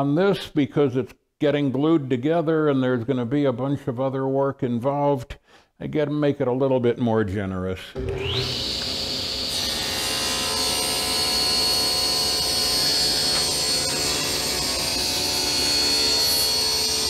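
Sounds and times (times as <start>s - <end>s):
saw blade cutting wood: 8.0s - 17.0s
table saw whining: 8.0s - 17.0s.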